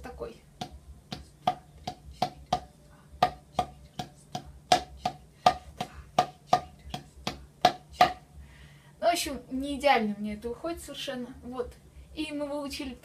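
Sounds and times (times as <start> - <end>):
drumsticks tapping practice pad: 0.6 - 8.3.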